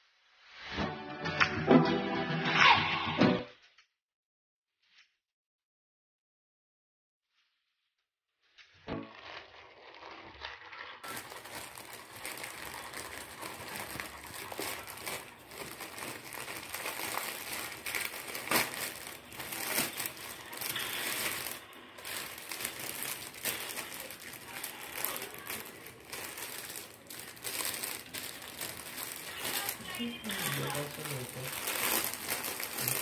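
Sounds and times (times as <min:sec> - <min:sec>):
plastic packaging crackling: 0:08.7 - 0:33.0
plastic mailer crinkling: 0:09.0 - 0:33.0.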